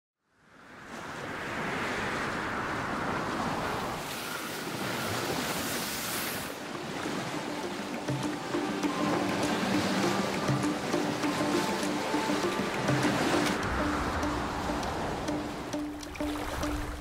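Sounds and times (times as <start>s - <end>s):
wind: 0.2s - 17.0s
sea waves: 0.4s - 17.0s
music: 6.8s - 17.0s.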